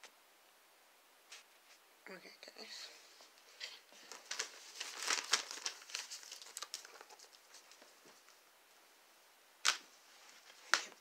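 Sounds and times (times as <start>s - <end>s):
crinkling and rustling: 3.0s - 8.5s.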